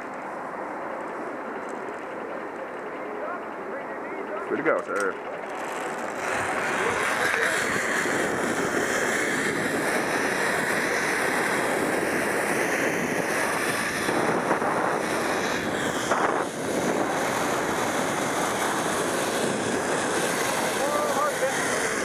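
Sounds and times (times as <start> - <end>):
zip line pulleys whirring on cable: 0.0 - 22.0
wind rushing over microphone: 6.1 - 22.0.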